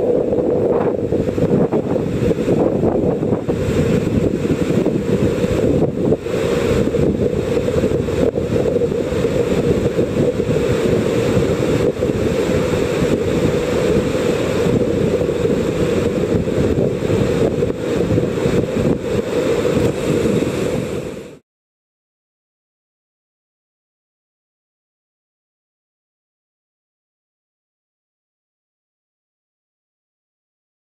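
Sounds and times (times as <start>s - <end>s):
whitewater rapid roaring: 0.0s - 21.4s
wind buffeting microphone: 0.0s - 21.4s.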